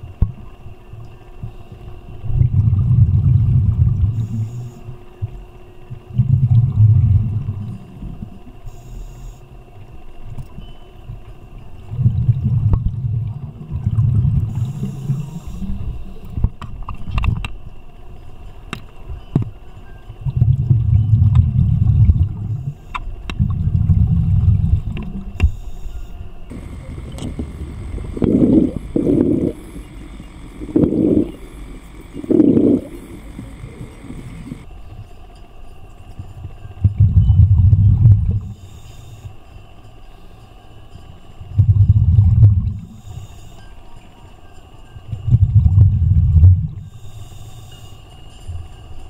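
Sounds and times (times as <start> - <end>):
low underwater bubbling: 2.4 - 4.2, 11.9 - 14.9, 26.5 - 34.7
short bursts of bubbles: 26.5 - 34.6.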